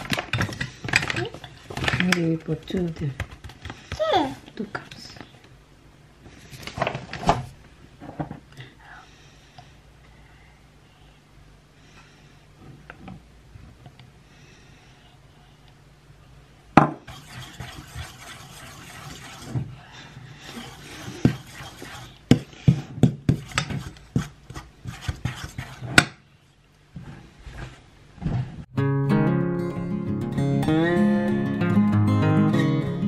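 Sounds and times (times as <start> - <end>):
metal spoon scraping metal bowl: 17.1 - 19.6.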